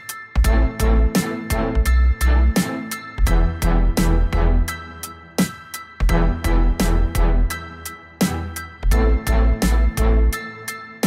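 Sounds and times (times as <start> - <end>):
music with heavy bass beat: 0.0 - 11.0.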